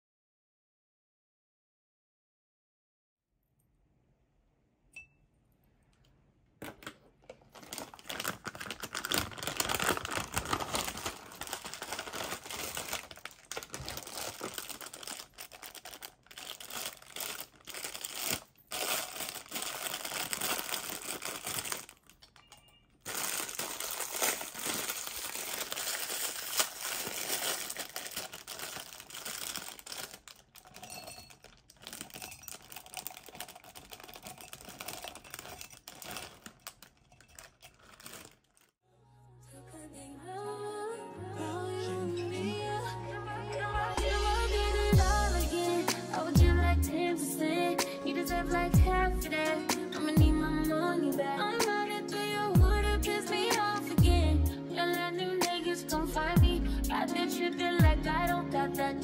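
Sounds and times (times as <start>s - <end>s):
plastic rings clattering into jar: 6.6s - 38.7s
plastic bag crinkling: 6.7s - 38.8s.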